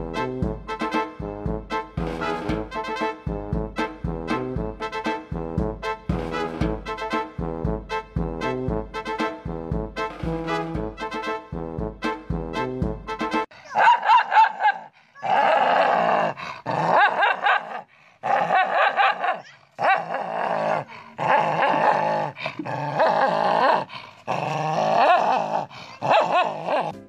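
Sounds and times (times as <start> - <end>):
dog growling and snarling: 15.2 - 27.0.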